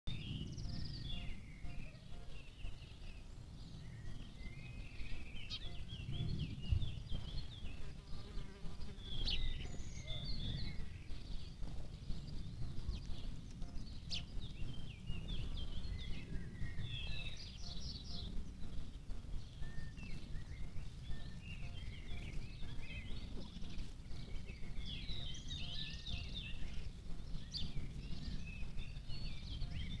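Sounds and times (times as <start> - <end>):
continuous low rumble: 0.1 - 30.0
small birds chirping: 0.1 - 30.0.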